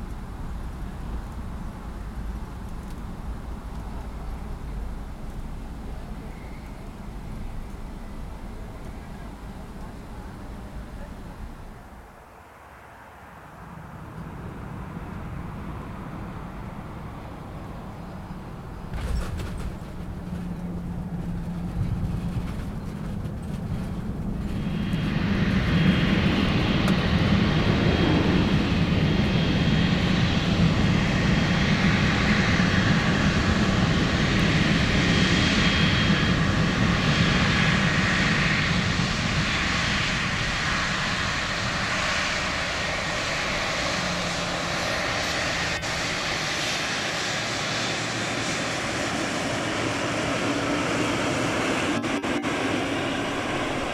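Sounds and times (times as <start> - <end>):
airliner engines rushing: 0.0 - 53.9
thin engine whine: 18.7 - 53.9.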